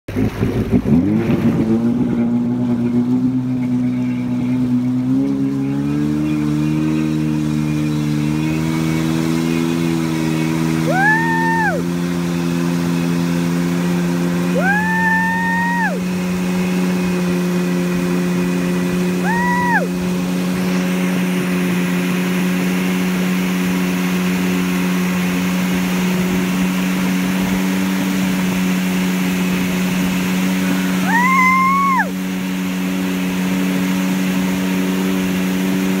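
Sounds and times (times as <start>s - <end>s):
boat engine: 0.1s - 36.0s
water rushing: 0.1s - 36.0s.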